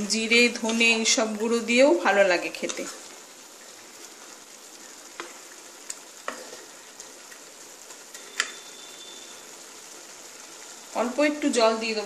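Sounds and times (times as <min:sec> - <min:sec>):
lentils sizzling in a pan: 0:00.0 - 0:12.0
wooden spatula stirring: 0:02.5 - 0:08.9.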